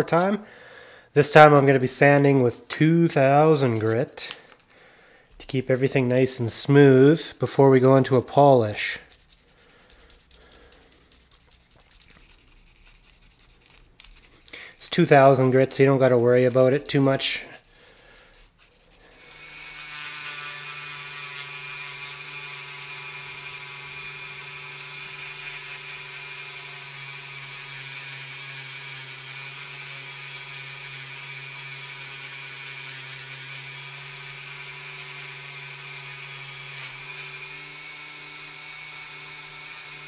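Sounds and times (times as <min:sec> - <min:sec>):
rotary tool whining: 0:08.0 - 0:40.0.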